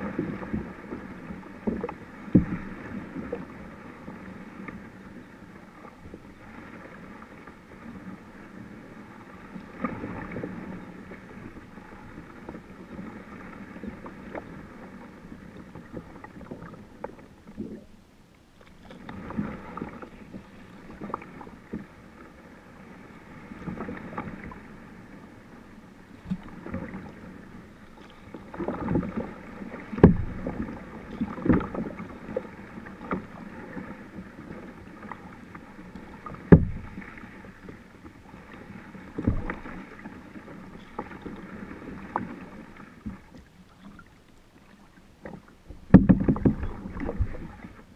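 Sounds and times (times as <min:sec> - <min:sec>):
paddle strokes splashing: 0:00.0 - 0:47.9.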